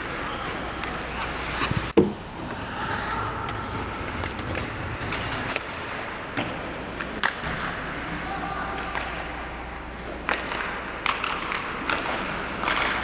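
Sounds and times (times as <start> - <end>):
hockey sticks and pucks clacking: 0.0 - 13.0
skate blades scraping ice: 0.4 - 6.0.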